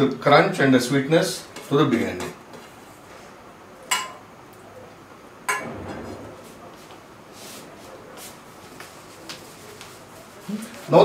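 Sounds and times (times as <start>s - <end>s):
dishes clinking: 3.9s - 4.3s, 5.5s - 6.0s.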